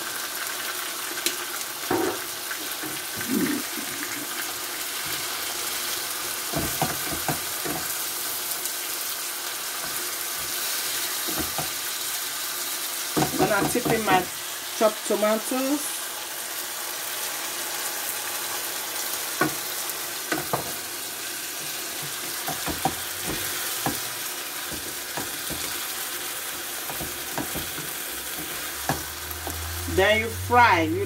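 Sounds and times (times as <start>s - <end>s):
food sizzling in frying pan: 0.0s - 31.0s
spatula scraping pan: 21.6s - 30.2s.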